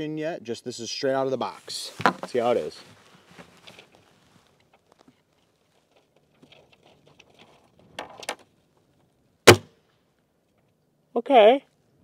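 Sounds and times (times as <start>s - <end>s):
soft rustles: 1.4s - 7.9s
air rifle shot crack: 9.5s - 9.7s.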